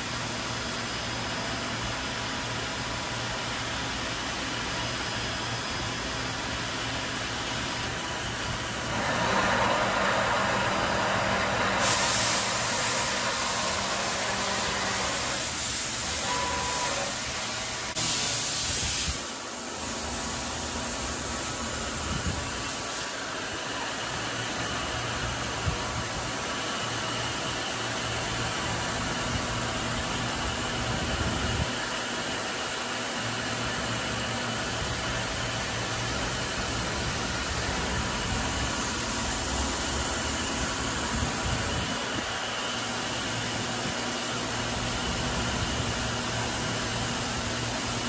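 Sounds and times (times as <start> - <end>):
lathe spindle whirring hiss: 0.0 - 48.0.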